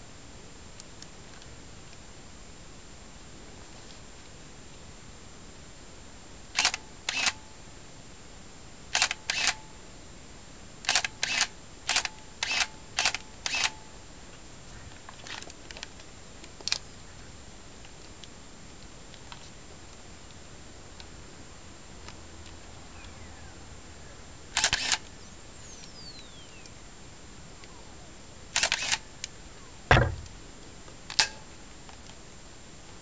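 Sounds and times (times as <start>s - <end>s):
camera shutter clacking: 24.6s - 25.0s, 28.6s - 29.0s.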